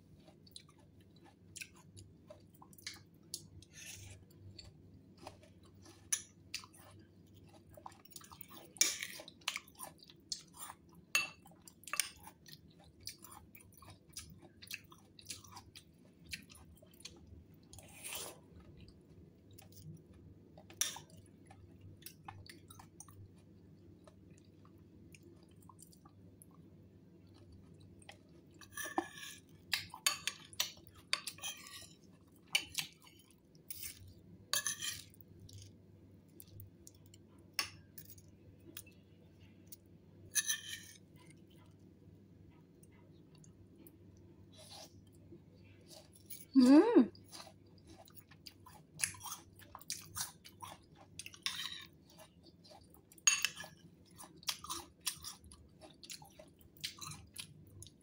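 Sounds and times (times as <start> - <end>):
spoon stirring in ceramic bowl: 28.6 - 35.6, 40.3 - 41.6, 50.2 - 55.4.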